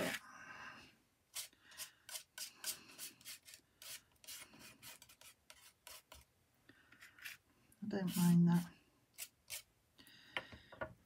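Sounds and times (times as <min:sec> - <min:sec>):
palette knife scraping paint: 0:01.3 - 0:07.4, 0:08.0 - 0:09.7.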